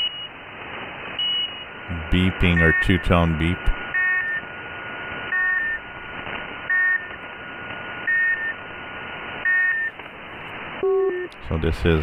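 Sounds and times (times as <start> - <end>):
two-tone beeps: 10.8 - 11.3
faint steady tone: 10.8 - 11.4.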